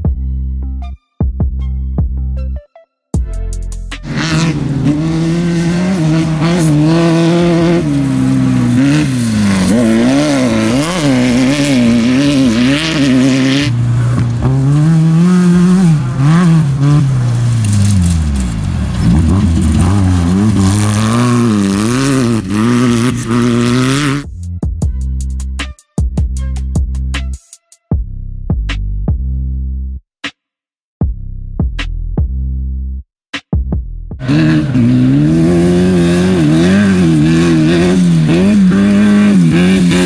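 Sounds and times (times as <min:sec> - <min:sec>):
race vehicle engine revving: 0:04.0 - 0:24.3, 0:34.2 - 0:40.0.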